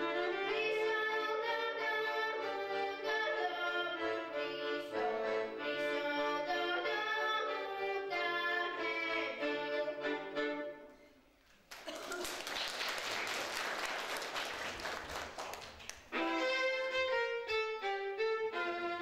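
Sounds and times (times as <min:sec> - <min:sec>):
violin and accordion folk tune: 0:00.0 - 0:11.1, 0:16.1 - 0:19.0.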